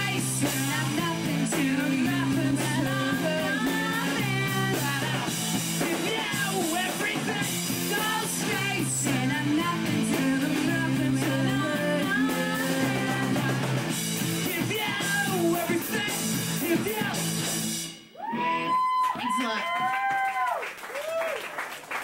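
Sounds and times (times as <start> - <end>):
man singing: 0.0 - 13.8, 14.4 - 17.4
rock band playing: 0.0 - 19.6.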